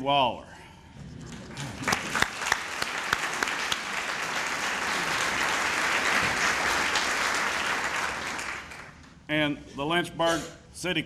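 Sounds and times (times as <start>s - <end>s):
audience applauding: 1.3s - 9.0s.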